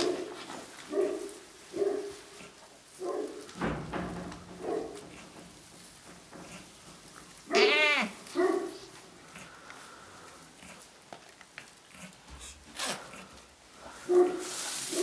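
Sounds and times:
goat bleating: 0:07.4 - 0:08.3
goats calling: 0:07.4 - 0:08.5.

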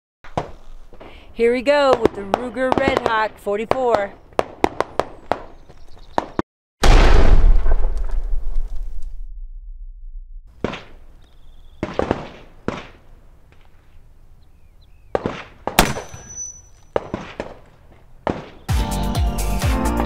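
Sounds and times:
revolver gunshot: 0:06.8 - 0:08.9, 0:10.6 - 0:11.0, 0:11.7 - 0:13.0, 0:15.1 - 0:17.6, 0:18.2 - 0:18.7
low rumbling echo: 0:06.9 - 0:10.6.

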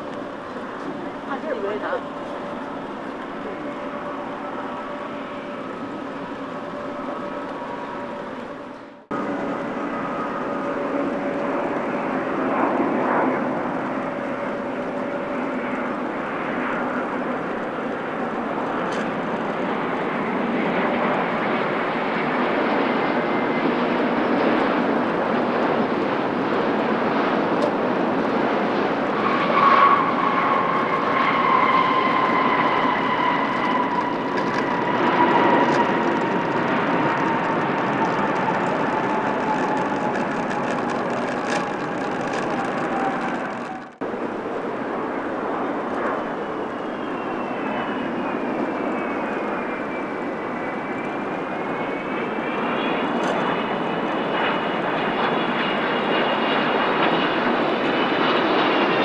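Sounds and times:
jet airliner engines rumbling: 0:00.0 - 0:59.0
whining engine tone: 0:28.8 - 0:44.1.

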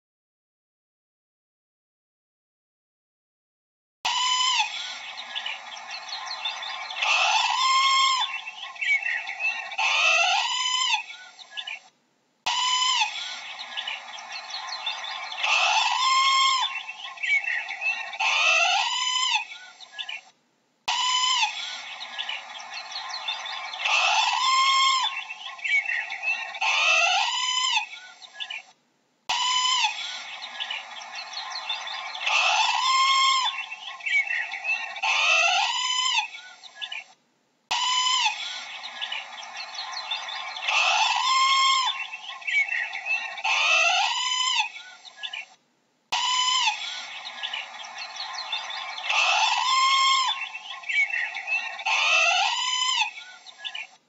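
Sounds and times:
parrot squawking: 0:04.1 - 0:11.8, 0:12.5 - 0:20.3, 0:20.9 - 0:28.7, 0:29.3 - 0:37.1, 0:37.7 - 0:45.4, 0:46.1 - 0:53.9.

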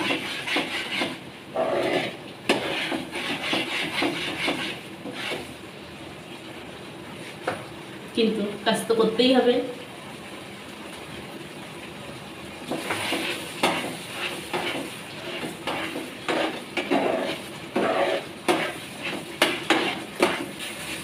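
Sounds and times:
metal spatula scraping frying pan: 0:00.0 - 0:05.5, 0:12.7 - 0:21.0.

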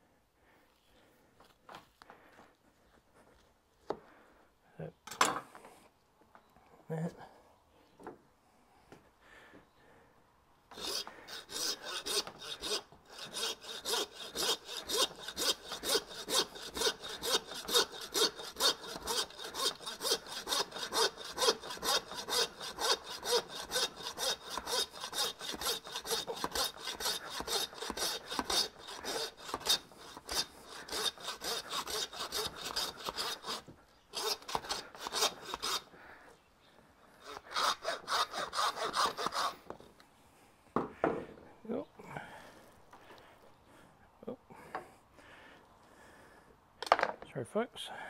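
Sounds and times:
hand saw cutting through bone: 0:10.7 - 0:35.9, 0:37.2 - 0:39.6.

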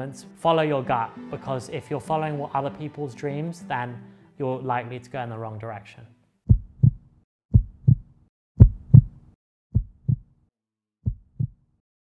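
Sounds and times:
heartbeat thumps: 0:06.5 - 0:10.3, 0:11.0 - 0:11.6.

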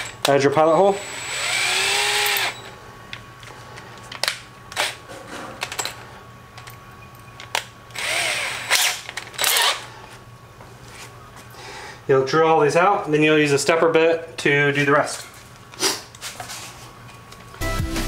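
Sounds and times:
cordless drill whirring: 0:00.9 - 0:02.7, 0:07.9 - 0:09.9.

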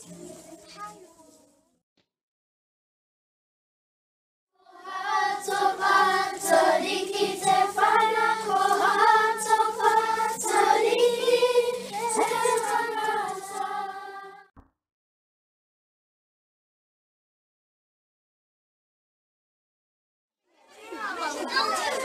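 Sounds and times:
children singing in unison: 0:04.6 - 0:14.5.

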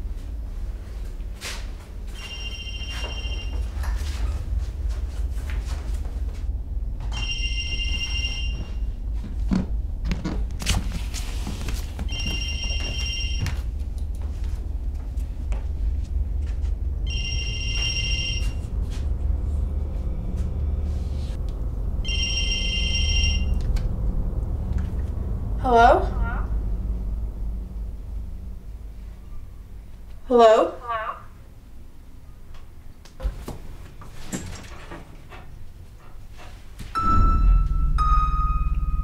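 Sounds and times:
low steady hum: 0:00.0 - 0:39.0
telephone ringing: 0:02.1 - 0:03.8, 0:07.1 - 0:08.9, 0:12.1 - 0:13.7, 0:17.1 - 0:18.6, 0:22.0 - 0:23.6.

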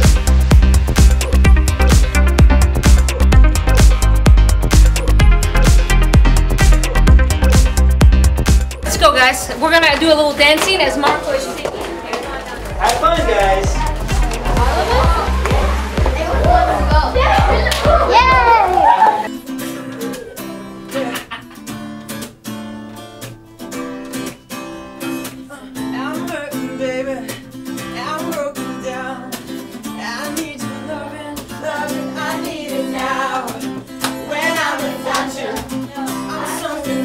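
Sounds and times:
children singing: 0:13.4 - 0:21.2, 0:30.9 - 0:37.0
acoustic guitar strumming: 0:19.3 - 0:37.0
people singing along: 0:30.5 - 0:37.0.

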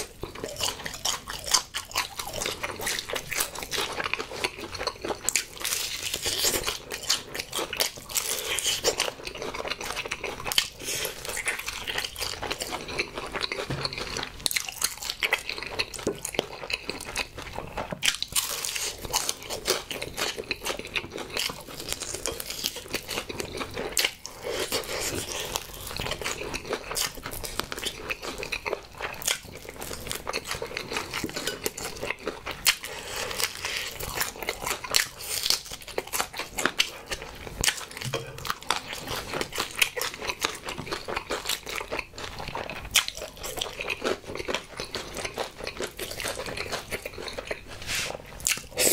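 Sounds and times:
wet chewing: 0:00.0 - 0:48.9.

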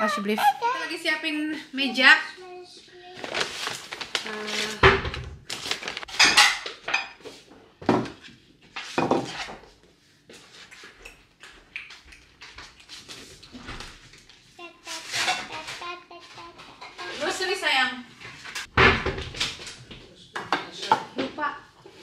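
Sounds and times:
plates and cutlery clinking: 0:06.1 - 0:07.3, 0:15.0 - 0:17.6.

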